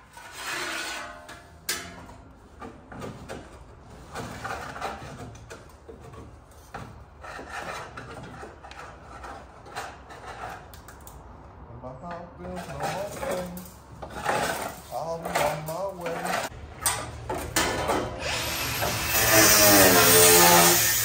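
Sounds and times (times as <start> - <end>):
steel panel scraping and knocking: 0.0 - 10.8, 12.4 - 18.2.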